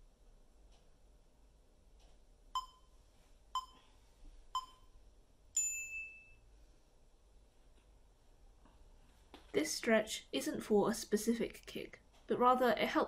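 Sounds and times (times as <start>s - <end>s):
timer beeps: 2.6s - 3.0s, 3.6s - 3.8s, 4.6s - 5.0s.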